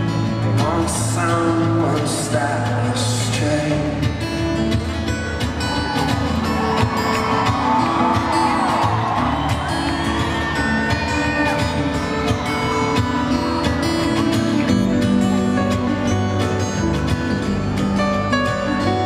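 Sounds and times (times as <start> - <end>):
man singing: 0.0 - 4.8
acoustic guitar: 0.0 - 19.0.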